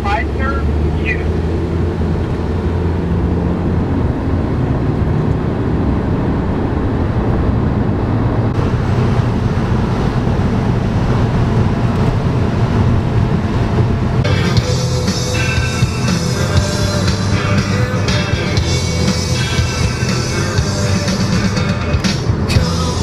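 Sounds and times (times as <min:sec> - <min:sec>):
car engine and road noise: 0:00.0 - 0:23.0
music: 0:14.2 - 0:23.0.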